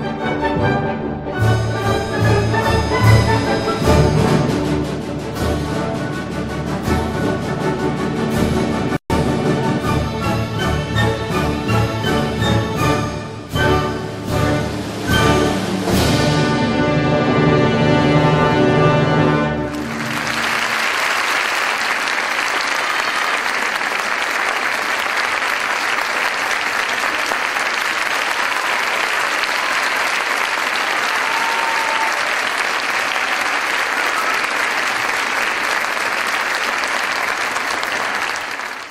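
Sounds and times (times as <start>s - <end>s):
orchestral music chord: 0.0s - 20.6s
audience applauding: 19.7s - 38.9s.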